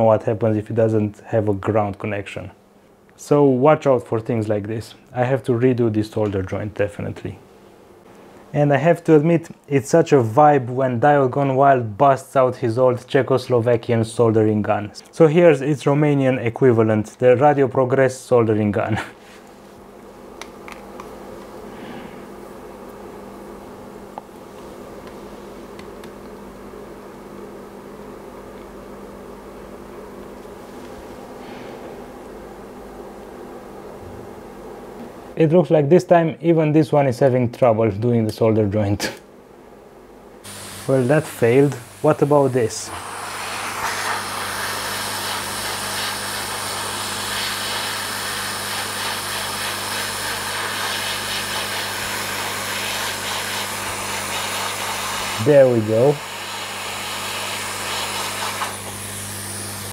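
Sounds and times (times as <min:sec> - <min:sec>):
soldering gun humming: 0:19.4 - 0:33.7, 0:40.4 - 0:59.9.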